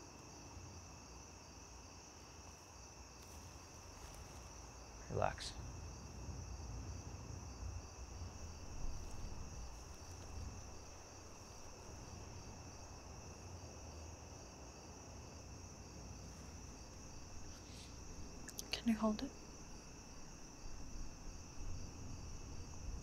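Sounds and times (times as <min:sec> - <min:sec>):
crickets trilling: 0:00.0 - 0:23.0
low background rumble: 0:04.9 - 0:14.3, 0:15.0 - 0:23.0.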